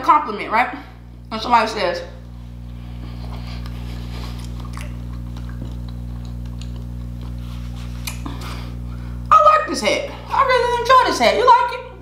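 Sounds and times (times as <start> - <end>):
low electrical hum: 0.0 - 12.0
chewing food: 3.2 - 8.5.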